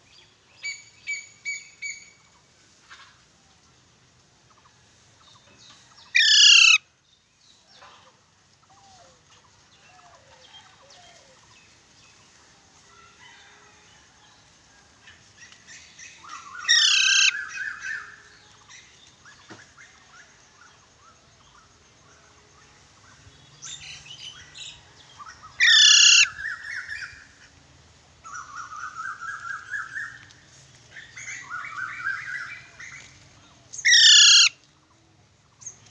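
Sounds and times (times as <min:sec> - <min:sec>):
parrot screeching: 0:06.2 - 0:06.8, 0:16.7 - 0:17.4, 0:25.6 - 0:26.3, 0:33.9 - 0:34.5.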